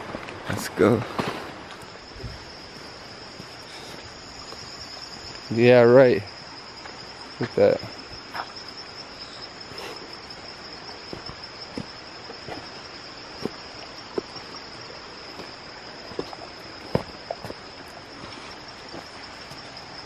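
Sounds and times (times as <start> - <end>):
footsteps on rocky trail: 0.0 - 5.4, 9.8 - 19.8
insects droning: 0.0 - 20.0.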